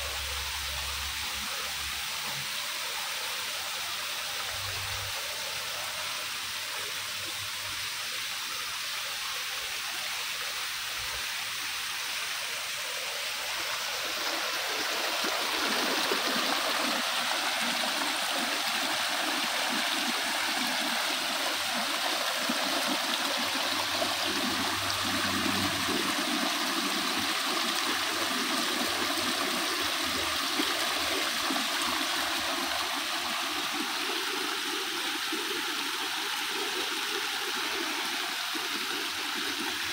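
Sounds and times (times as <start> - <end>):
water rushing over rocks: 9.7 - 39.9.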